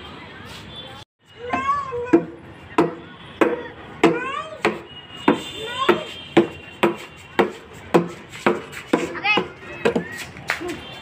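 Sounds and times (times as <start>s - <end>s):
sharp knocks: 1.6s - 10.1s.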